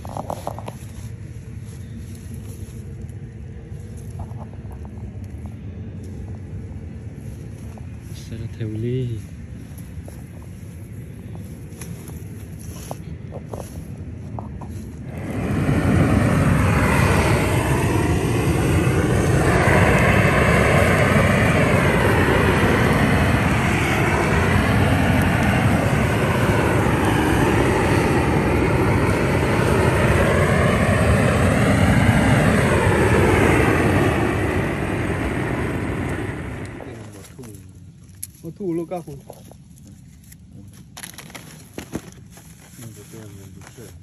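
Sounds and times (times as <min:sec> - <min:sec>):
gas torch rushing hiss: 0:15.0 - 0:31.1.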